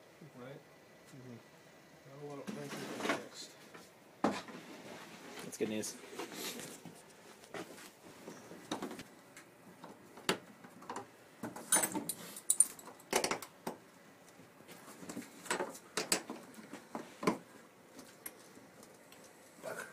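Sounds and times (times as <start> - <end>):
sharp wooden knocks and clicks: 12.9 - 13.8.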